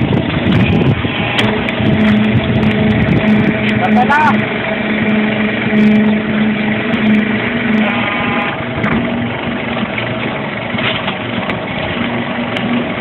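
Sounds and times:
conveyor motor drone: 0.0 - 13.0
low hum: 0.0 - 13.0.

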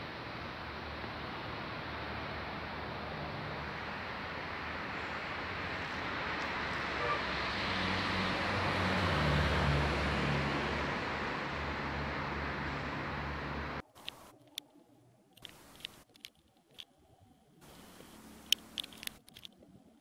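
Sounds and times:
vehicle passing close: 0.0 - 13.8
highway traffic noise: 0.0 - 14.4, 17.6 - 19.8.

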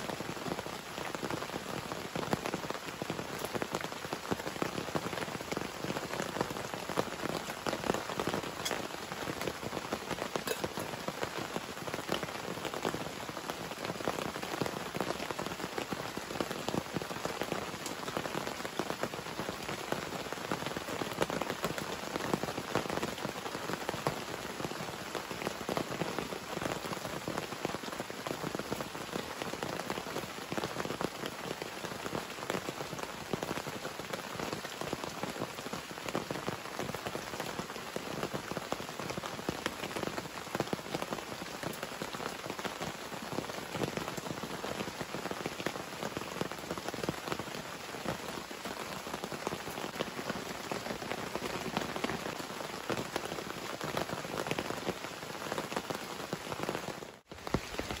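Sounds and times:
heavy rain falling: 0.0 - 58.0.

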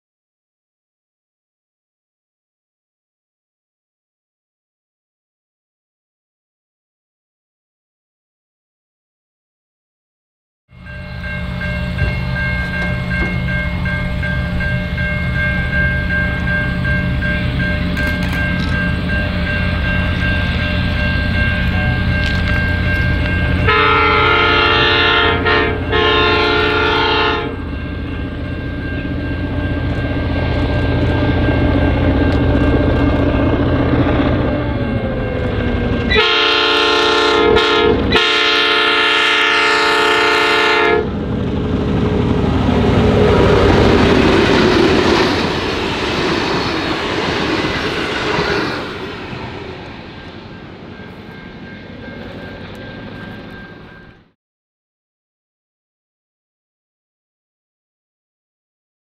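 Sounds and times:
train passing with wheel noise: 10.7 - 54.4
locomotive air horn chord: 23.6 - 27.7, 36.0 - 41.2.

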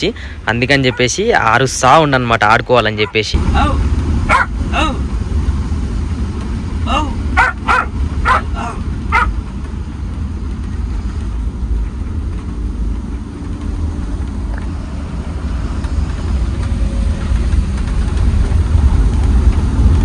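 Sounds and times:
truck engine and road noise: 0.0 - 20.0
dog barking: 0.8 - 1.2, 3.0 - 3.4, 4.3 - 4.5, 7.4 - 9.4.

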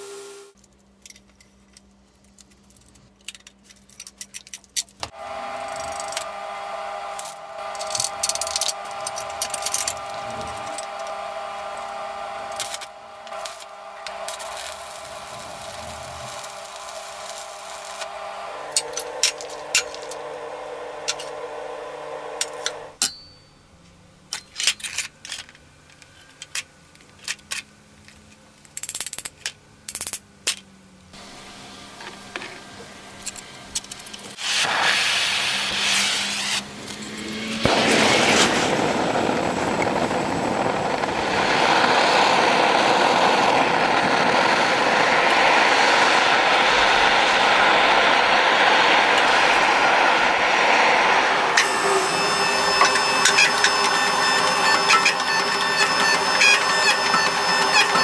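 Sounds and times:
gas burner roaring: 0.0 - 0.6, 5.0 - 23.0, 31.1 - 58.0
low steady hum: 0.0 - 27.0.

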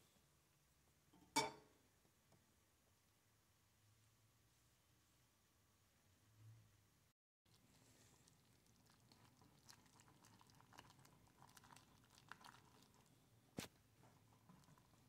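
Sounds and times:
whisk stirring thick soup: 7.5 - 13.2, 13.9 - 15.0.

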